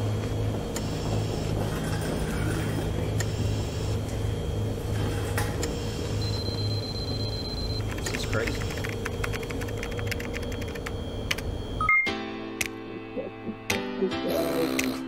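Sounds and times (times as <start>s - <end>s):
pulsing electronic hum: 0.0s - 12.1s
high steady beep: 5.7s - 12.2s.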